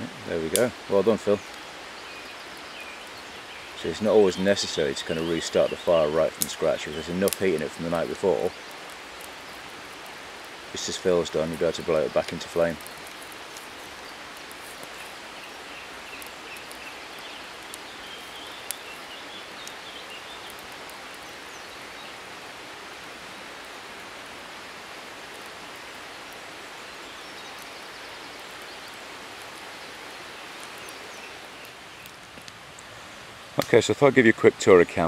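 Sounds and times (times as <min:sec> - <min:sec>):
outdoor background hiss: 0:00.0 - 0:35.0.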